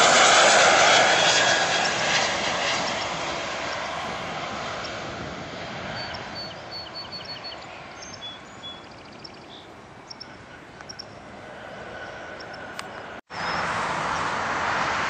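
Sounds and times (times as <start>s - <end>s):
jet engine rush: 0.0s - 15.0s
small bird chirping: 5.9s - 11.2s.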